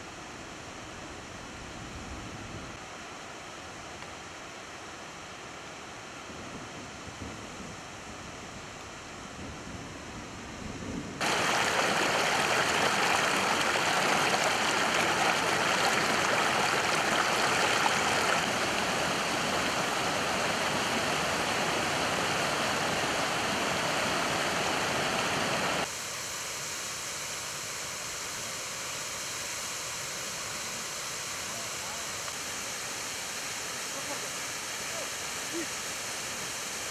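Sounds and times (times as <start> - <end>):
waterfall rushing: 11.2 - 25.9.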